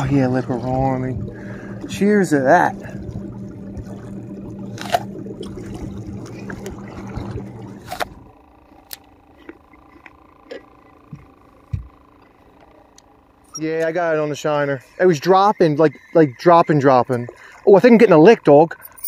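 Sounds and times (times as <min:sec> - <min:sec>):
water washing along hull: 0:00.0 - 0:08.4, 0:13.8 - 0:19.0
boat motor humming: 0:00.0 - 0:19.0.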